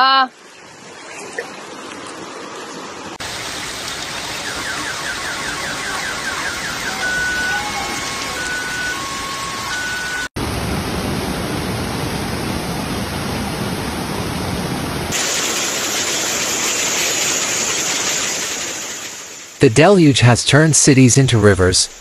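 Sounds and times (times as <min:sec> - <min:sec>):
floodwater rushing: 0:00.0 - 0:20.6
car alarm tones: 0:04.3 - 0:10.4.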